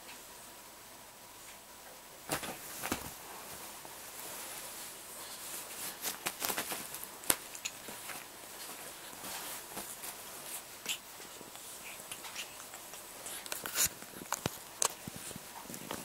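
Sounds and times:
duvet fabric rustling: 0:02.2 - 0:16.0
kitten wrestling with toy: 0:05.6 - 0:16.0.

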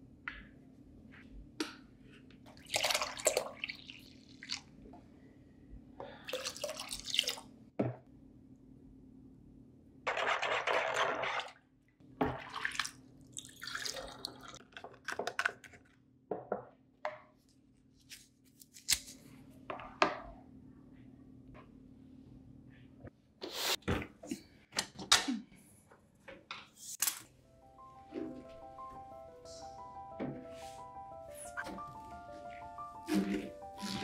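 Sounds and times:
liquid pouring: 0:02.6 - 0:04.6, 0:12.2 - 0:14.6.

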